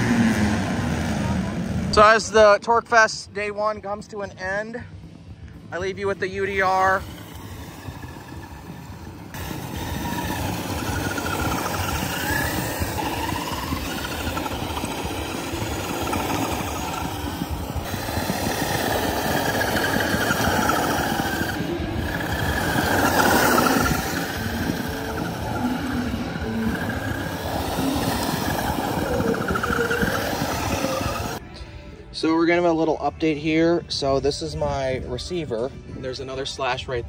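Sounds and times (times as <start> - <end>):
dense rattling: 6.2 - 31.4
electric motor whine: 6.4 - 31.4.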